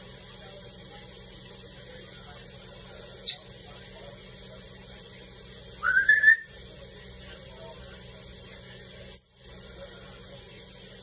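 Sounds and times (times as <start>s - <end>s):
parrot whistling: 5.8s - 6.6s.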